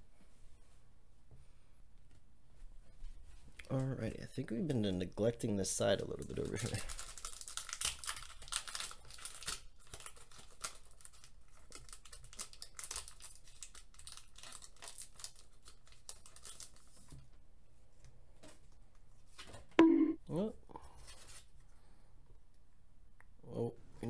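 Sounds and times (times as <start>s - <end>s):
foil wrapper crinkling and tearing: 6.2s - 17.1s.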